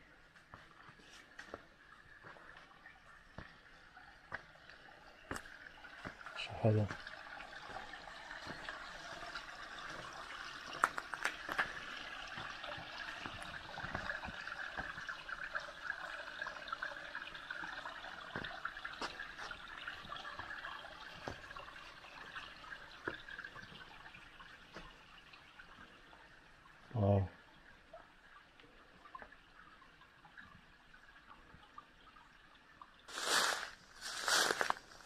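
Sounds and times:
stream babbling over rocks: 5.0s - 24.1s, 33.1s - 35.0s.

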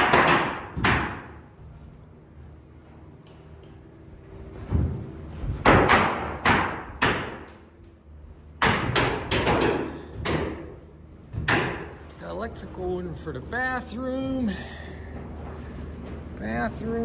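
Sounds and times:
hammer nailing wood: 0.0s - 1.4s, 5.6s - 7.6s, 8.6s - 10.6s, 11.3s - 11.9s
low steady hum: 0.0s - 17.0s.

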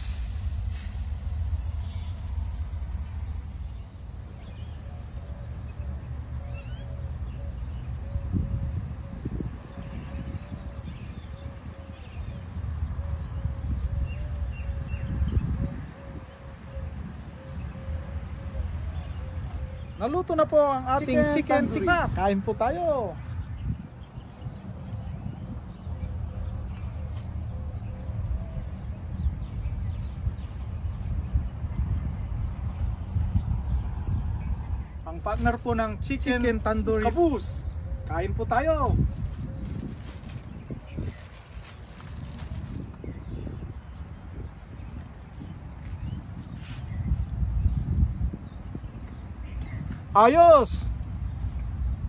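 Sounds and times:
low outdoor rumble: 0.0s - 20.0s
bird rising chirps: 0.2s - 23.7s.

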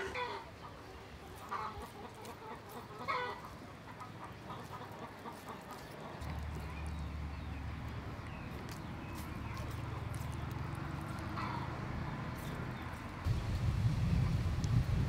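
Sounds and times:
chickens clucking: 0.0s - 7.1s, 8.2s - 13.2s.

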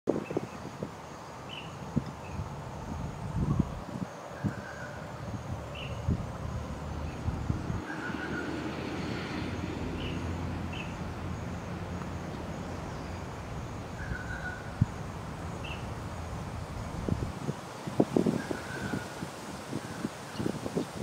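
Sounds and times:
faint bird chirps: 14.0s - 14.8s.

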